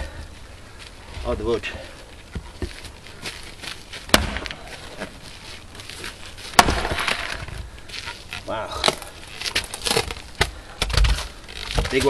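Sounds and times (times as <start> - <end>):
wood crackling as it splits: 0.0 - 12.0
axe striking wood: 4.1 - 4.6, 6.5 - 7.6.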